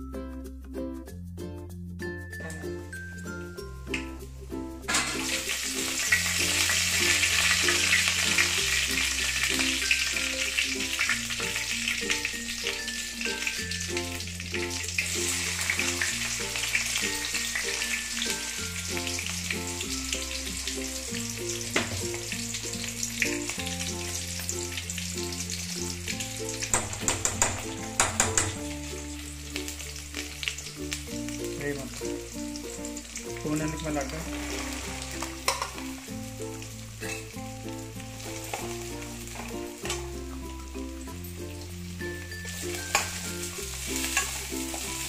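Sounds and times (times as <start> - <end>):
food sizzling in hot oil: 2.6 - 45.0
stirring clinks: 4.9 - 5.5, 34.3 - 35.8, 37.0 - 37.3, 42.5 - 44.4.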